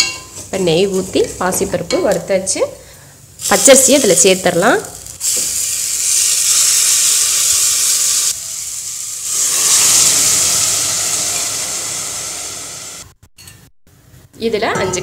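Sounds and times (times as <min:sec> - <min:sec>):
rice sizzling in ghee: 0:03.4 - 0:13.1
water hissing in hot pan: 0:03.4 - 0:13.1.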